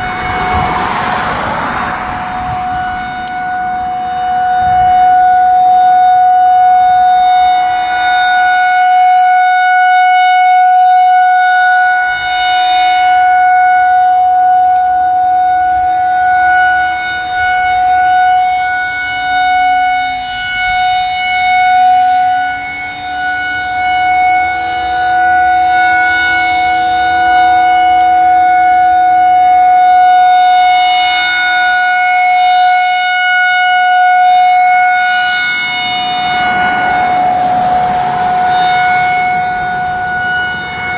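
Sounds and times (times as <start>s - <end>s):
rotating siren steady tone: 0.0s - 40.9s.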